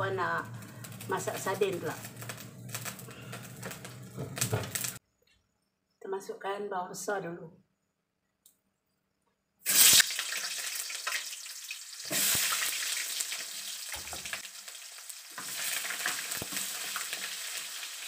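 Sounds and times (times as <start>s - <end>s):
onions sizzling in hot oil: 0.0s - 5.0s, 9.7s - 18.0s.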